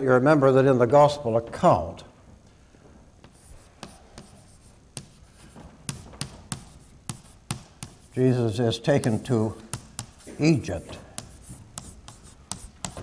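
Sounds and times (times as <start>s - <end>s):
chalk tapping and scraping on blackboard: 3.2s - 13.0s.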